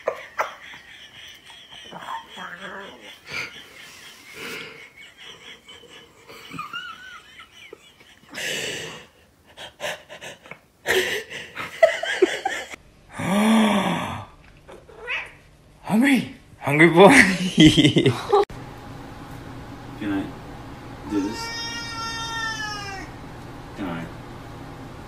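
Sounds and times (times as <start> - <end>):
stifled wheezy laughter: 0.0 - 12.8.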